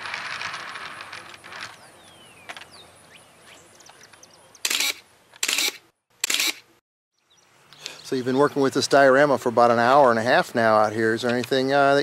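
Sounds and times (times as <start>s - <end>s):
camera shutter snapping: 4.6s - 6.7s.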